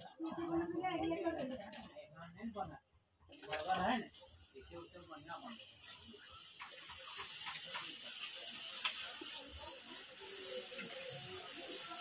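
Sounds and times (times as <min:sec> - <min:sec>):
steam hissing: 0:04.2 - 0:12.0.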